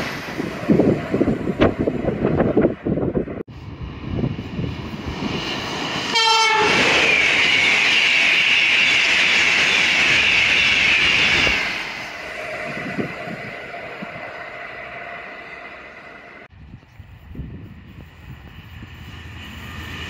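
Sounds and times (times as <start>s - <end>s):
train wheels rushing on rail: 0.0s - 20.0s
train horn blast: 6.1s - 6.8s.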